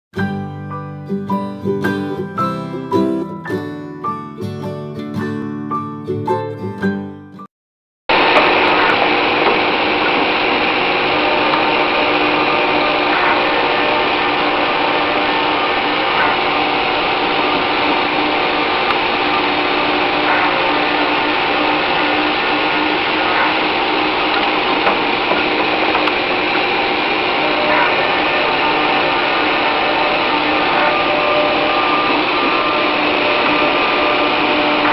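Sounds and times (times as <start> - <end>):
circular saw cutting steel: 8.1 - 34.9.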